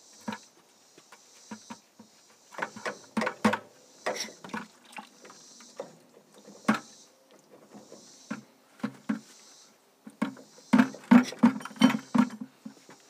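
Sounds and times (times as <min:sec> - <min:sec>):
oil trickling into plastic bucket: 0:04.5 - 0:05.4.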